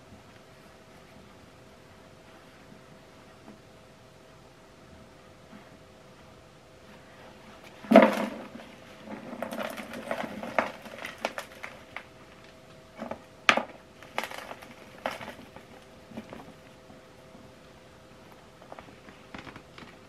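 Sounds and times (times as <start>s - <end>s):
falling dust and debris: 7.8s - 12.1s, 13.5s - 16.6s.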